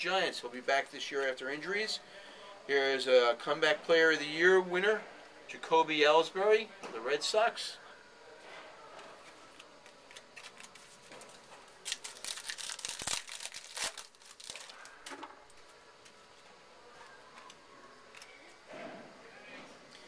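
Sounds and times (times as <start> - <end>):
wrapper being torn open: 11.8 - 15.1.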